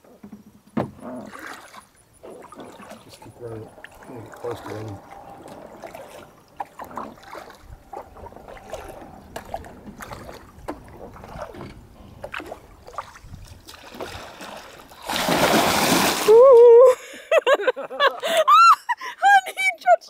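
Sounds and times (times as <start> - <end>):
water trickling and lapping: 0.9 - 17.2
paddle drips: 1.3 - 16.6.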